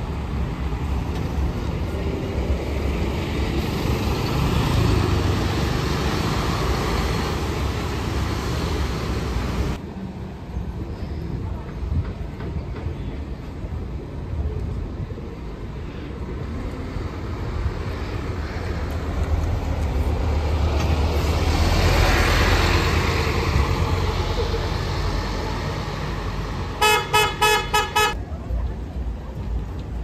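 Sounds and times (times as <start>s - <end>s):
bus engine rumble: 0.0s - 30.0s
horn beeps: 26.8s - 28.2s.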